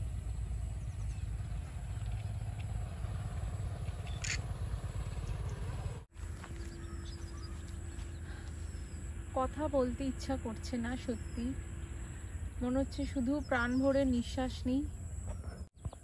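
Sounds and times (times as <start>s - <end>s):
faint steady hum: 5.3s - 15.5s.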